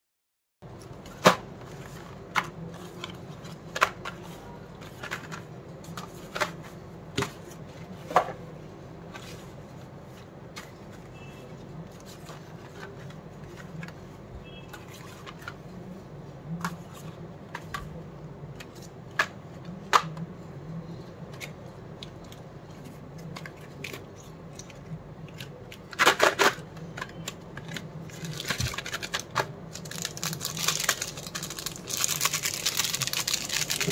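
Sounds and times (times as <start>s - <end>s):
low steady hum: 0.6s - 33.9s
plastic wrapper crinkling: 27.7s - 33.9s.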